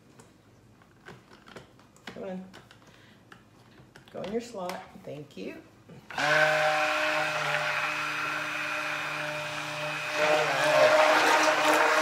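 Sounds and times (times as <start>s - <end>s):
immersion blender motor whine: 6.1s - 12.0s.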